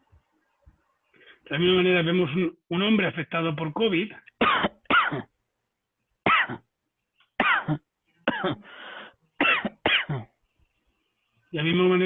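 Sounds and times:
man coughing: 0:04.4 - 0:05.3, 0:06.3 - 0:06.6, 0:07.4 - 0:08.6, 0:09.4 - 0:10.3.

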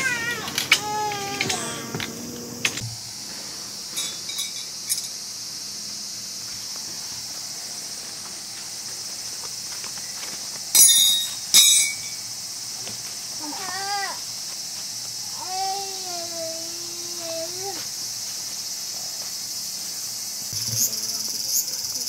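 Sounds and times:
insects buzzing: 0:00.0 - 0:22.0
metal tent stakes clinking: 0:03.9 - 0:05.2, 0:10.7 - 0:12.2.

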